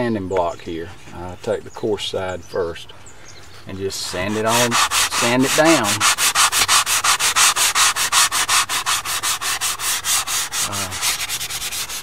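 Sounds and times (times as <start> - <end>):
sanding block rubbing on wood: 4.0 - 12.0.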